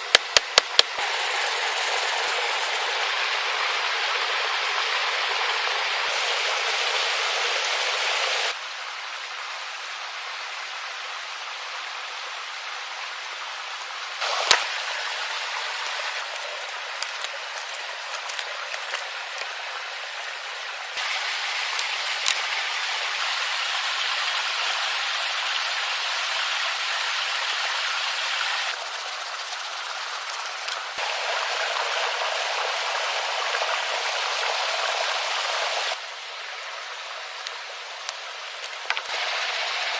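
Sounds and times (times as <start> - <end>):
steady outdoor hiss: 0.0 - 39.9
small clicks and snaps: 17.0 - 19.5.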